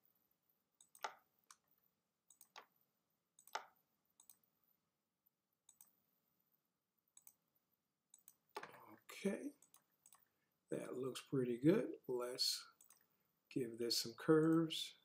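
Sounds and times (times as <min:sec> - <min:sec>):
computer mouse clicks: 0:00.8 - 0:01.6, 0:02.3 - 0:02.7, 0:03.4 - 0:04.5, 0:05.7 - 0:06.0, 0:07.2 - 0:07.4, 0:08.1 - 0:08.8, 0:09.6 - 0:10.3, 0:12.8 - 0:13.0.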